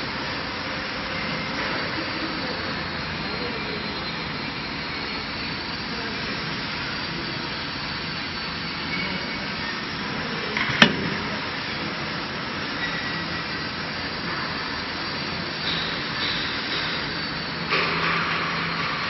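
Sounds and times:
machine whirring hiss: 0:00.0 - 0:19.0
sharp click: 0:10.6 - 0:11.3.

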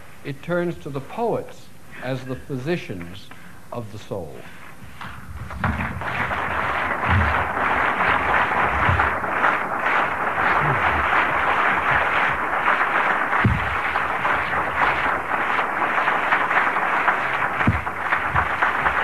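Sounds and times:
low thumps: 0:05.2 - 0:07.5, 0:13.4 - 0:13.8
audience applauding: 0:05.3 - 0:19.0.

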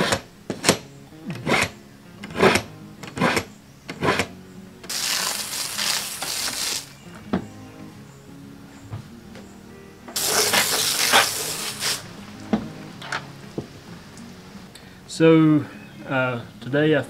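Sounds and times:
steady scraping hiss: 0:04.9 - 0:07.2, 0:08.6 - 0:17.0.

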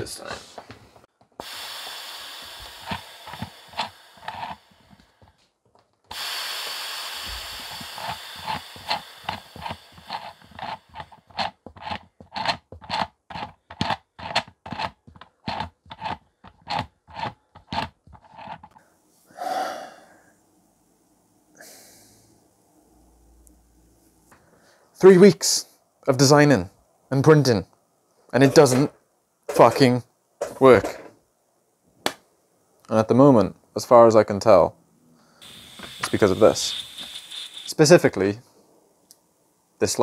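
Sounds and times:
air hissing: 0:01.4 - 0:05.4, 0:06.1 - 0:11.5, 0:35.4 - 0:38.3
man sighing: 0:19.3 - 0:20.3
engine puffs and clicks: 0:35.4 - 0:37.8.

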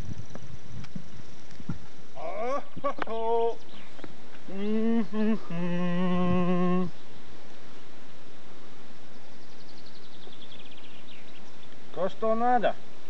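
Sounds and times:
outdoor background hiss: 0:00.0 - 0:13.0
man humming: 0:02.2 - 0:03.6, 0:04.4 - 0:07.0.

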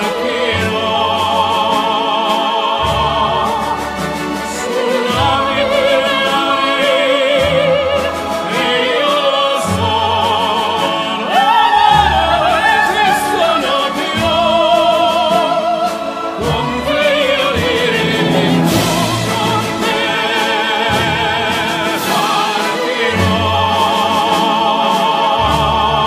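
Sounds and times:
operatic voice singing: 0:00.0 - 0:26.0
instrumental accompaniment: 0:13.8 - 0:23.4.

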